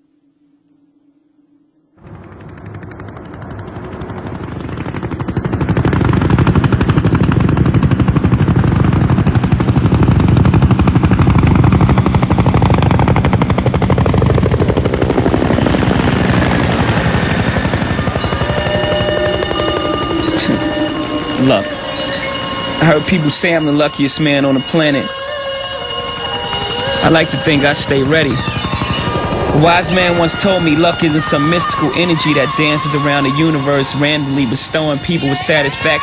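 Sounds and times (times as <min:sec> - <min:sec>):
held musical tones: 0:14.8 - 0:36.0.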